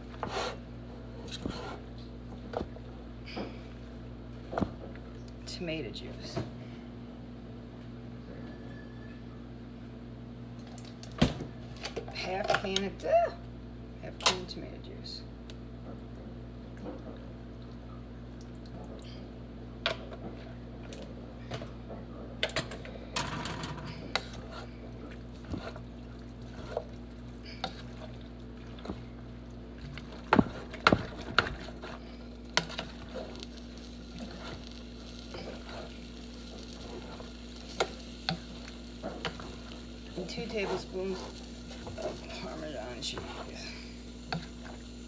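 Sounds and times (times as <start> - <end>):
wooden spoon stirring in metal pot: 24.0 - 44.9.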